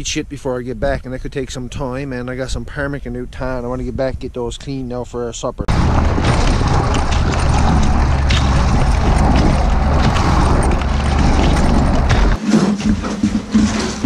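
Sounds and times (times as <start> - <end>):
track and snow noise: 5.6 - 14.0
snowmobile engine running: 5.7 - 12.4
toboggan scraping on concrete: 5.7 - 14.0.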